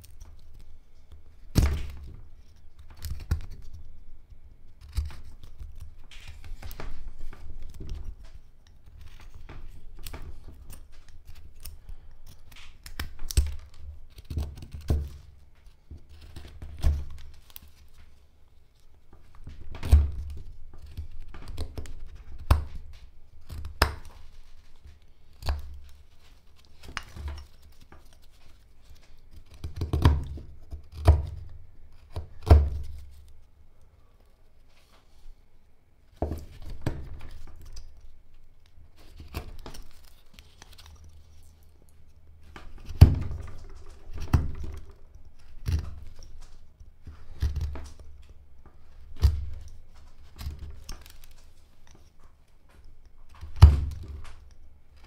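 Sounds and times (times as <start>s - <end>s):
blade carving wood: 4.8s - 8.0s.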